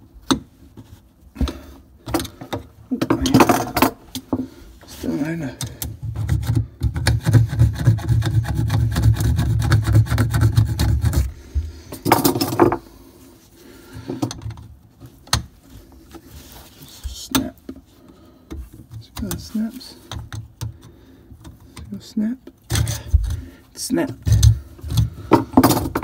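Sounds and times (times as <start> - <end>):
hacksaw sawing copper pipe: 6.2 - 11.4, 22.7 - 23.5.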